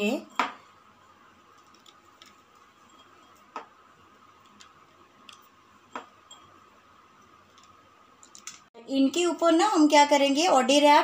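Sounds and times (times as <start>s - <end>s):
faint steady hum: 0.0s - 11.0s
nuts sprinkled with light clicks: 1.5s - 2.4s.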